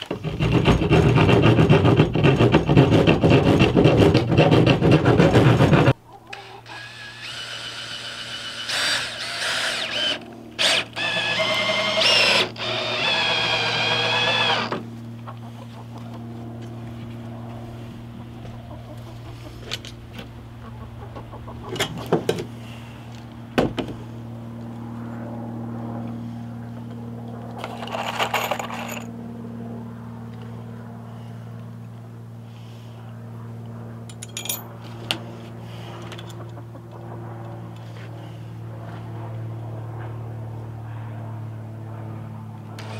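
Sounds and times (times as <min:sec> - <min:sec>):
steady low hum: 0:00.0 - 0:42.9
cordless drill driving screws: 0:06.7 - 0:14.8.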